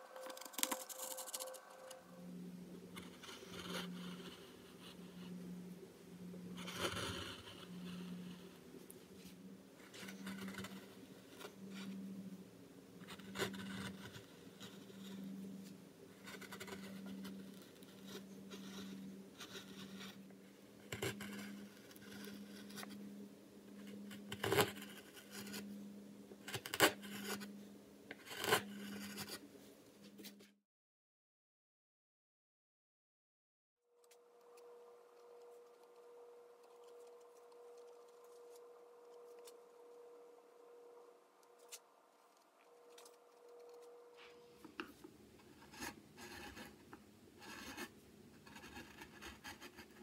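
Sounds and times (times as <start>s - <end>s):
carving gouges scraping wood: 2.9s - 5.4s, 6.5s - 8.5s, 9.8s - 12.0s, 13.0s - 15.4s, 16.1s - 23.0s, 23.7s - 25.6s, 26.4s - 27.5s, 28.1s - 29.4s, 43.0s - 50.0s.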